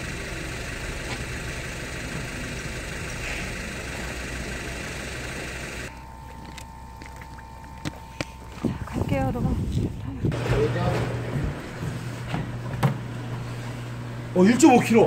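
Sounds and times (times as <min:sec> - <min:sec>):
boat engine idling: 0:00.0 - 0:08.7.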